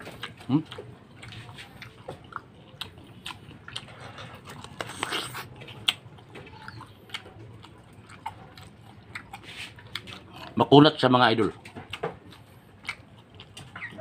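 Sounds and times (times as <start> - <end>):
chewing with wet clicks and smacks: 0.0 - 14.0.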